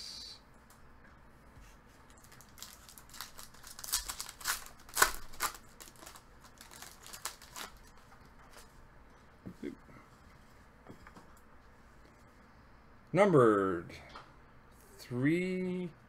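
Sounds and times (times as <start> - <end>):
wrapper crinkling and tearing: 2.1 - 8.1.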